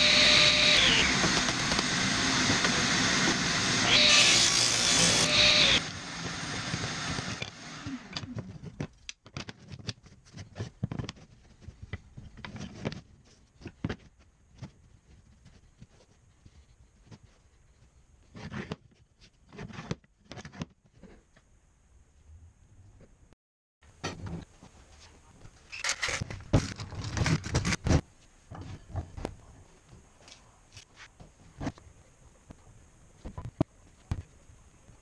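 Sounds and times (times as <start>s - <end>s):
table saw ripping wood: 0.0s - 8.3s.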